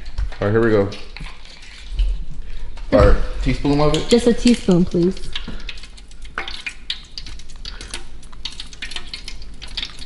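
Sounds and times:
utensils and dishes clicking: 0:03.8 - 0:10.0.

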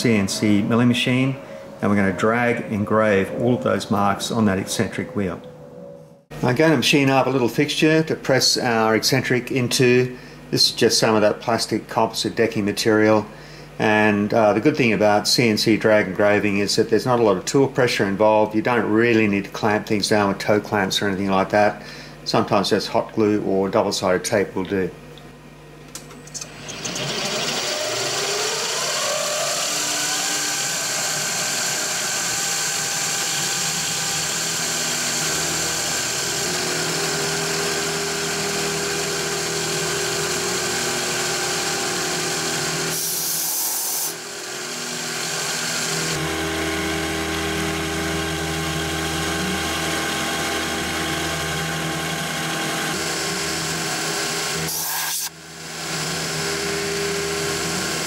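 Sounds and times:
end mill cutting plastic: 0:26.3 - 0:58.0
milling machine spindle whine: 0:26.3 - 0:58.0.

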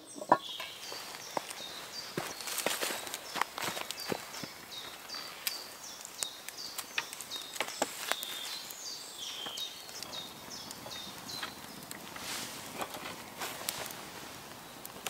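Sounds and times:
songbird chirping: 0:00.0 - 0:15.0
campfire crackling and snapping: 0:00.4 - 0:15.0.

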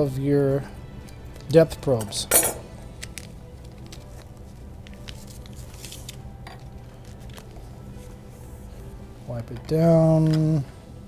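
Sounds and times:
quiet background music: 0:00.0 - 0:11.0
plastic sleeve crinkling: 0:03.0 - 0:08.1.

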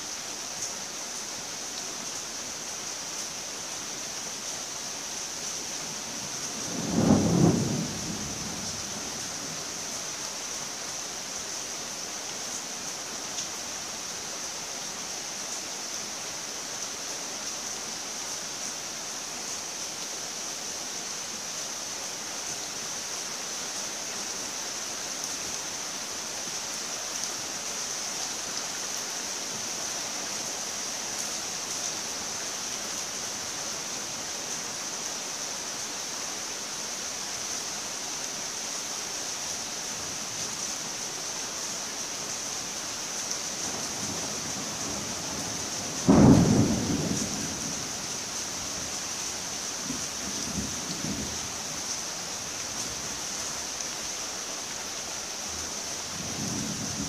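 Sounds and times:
rain hiss: 0:00.0 - 0:57.0.

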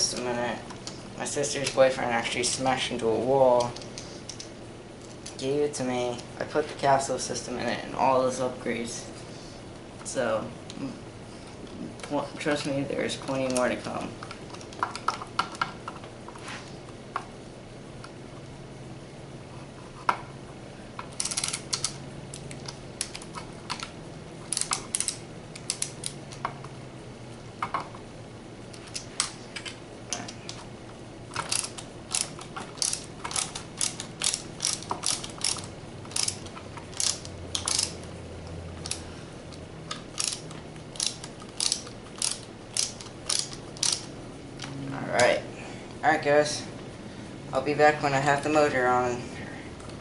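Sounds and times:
ratchet-like screwdriver clicks: 0:21.2 - 0:23.8, 0:24.5 - 0:26.2, 0:31.3 - 0:38.0, 0:40.1 - 0:44.1.

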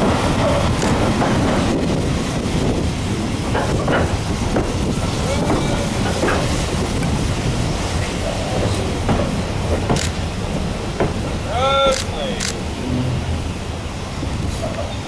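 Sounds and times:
wheels knocking on track: 0:00.0 - 0:11.4
railway carriage rumble: 0:00.0 - 0:15.0.

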